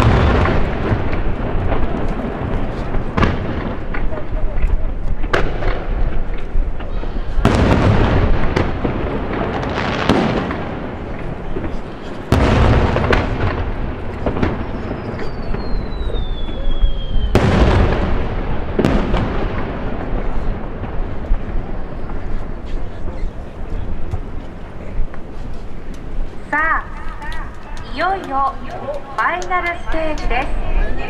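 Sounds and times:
loud booms with rolling echo: 0:00.0 - 0:24.9
firework crackling: 0:00.0 - 0:31.0
falling firework whistle: 0:14.5 - 0:18.0.

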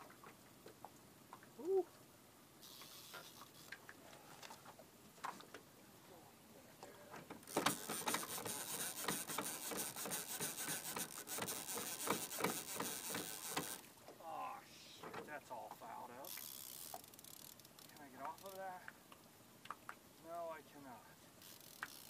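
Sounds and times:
fishing reel ratcheting clicks: 0:02.6 - 0:03.7, 0:07.4 - 0:13.8, 0:16.2 - 0:18.6, 0:21.4 - 0:22.0
faint ticks: 0:02.6 - 0:05.6, 0:06.8 - 0:13.9, 0:16.2 - 0:20.0, 0:21.4 - 0:22.0.

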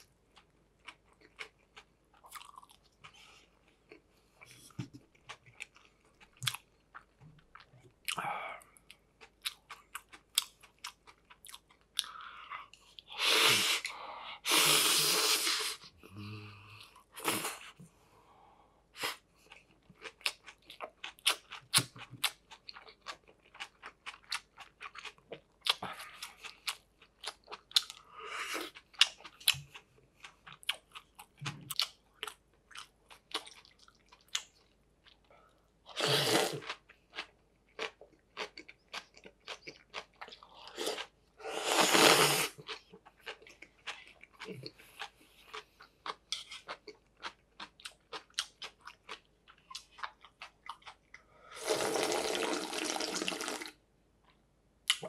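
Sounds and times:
slurping noodles: 0:13.1 - 0:15.9, 0:36.0 - 0:36.6, 0:40.8 - 0:42.6, 0:51.6 - 0:53.8
chewing with wet mouth clicks: 0:28.6 - 0:35.2, 0:42.6 - 0:51.3.

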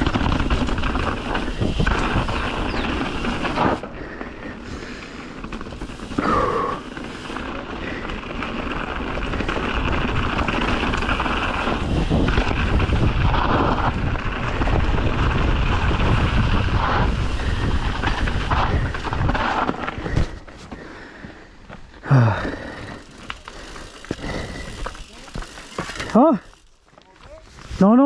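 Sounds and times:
wind buffeting microphone: 0:00.0 - 0:06.3, 0:07.1 - 0:20.4.

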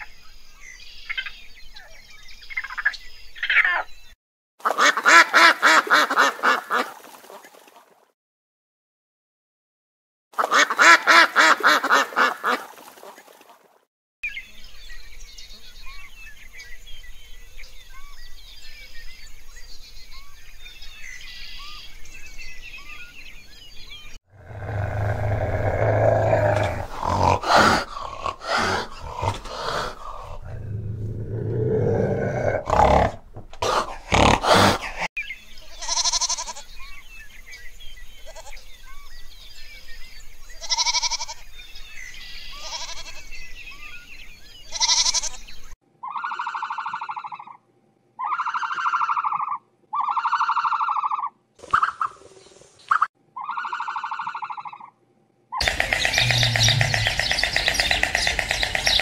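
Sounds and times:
faint bird chirping: 0:14.3 - 0:33.1, 0:55.6 - 0:59.0
short animal calls: 0:24.4 - 0:30.8, 0:55.6 - 0:59.0
deep animal call with grunting: 0:24.4 - 0:35.1, 0:55.6 - 0:59.0.

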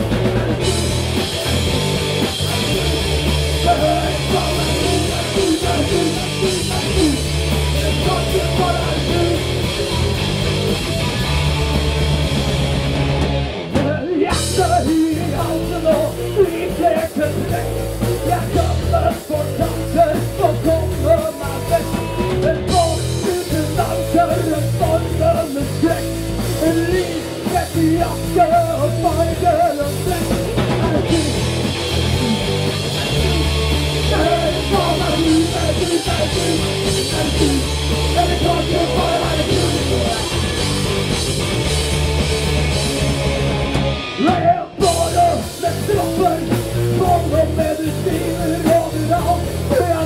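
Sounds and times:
rock band playing live: 0:00.0 - 0:50.0
person singing: 0:02.2 - 0:09.7, 0:13.8 - 0:31.4, 0:32.1 - 0:40.5, 0:44.2 - 0:50.0.

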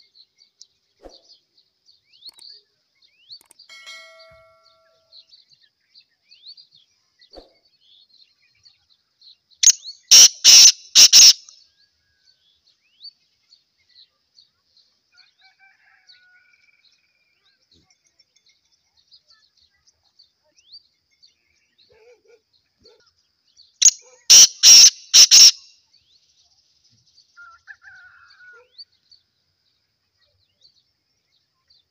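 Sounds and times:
faint small bird chirps: 0:00.0 - 0:31.9
francolin harsh calls: 0:09.6 - 0:11.5, 0:23.8 - 0:25.7.

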